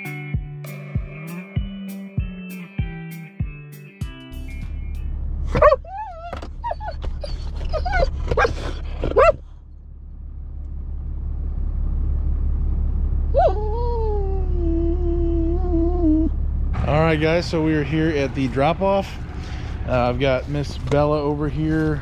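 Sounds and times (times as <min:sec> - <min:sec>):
truck rumble: 0:04.1 - 0:22.0
dog whining and yipping: 0:05.5 - 0:09.5, 0:13.3 - 0:16.4.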